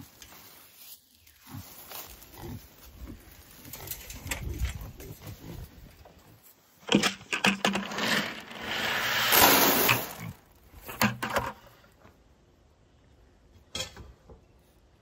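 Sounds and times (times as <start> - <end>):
pellets poured into plastic trough: 7.5 - 10.4.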